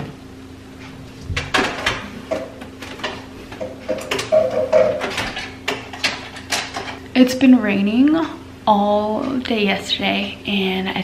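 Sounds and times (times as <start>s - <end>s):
faint steady hum: 0.0s - 11.0s
mug and machine knocks and clinks: 1.4s - 7.0s.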